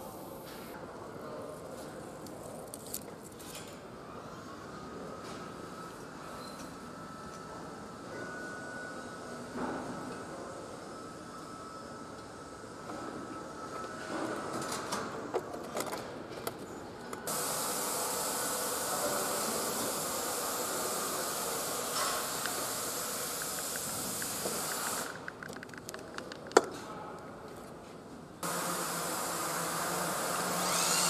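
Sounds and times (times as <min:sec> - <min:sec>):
steady hiss: 0:17.3 - 0:25.3.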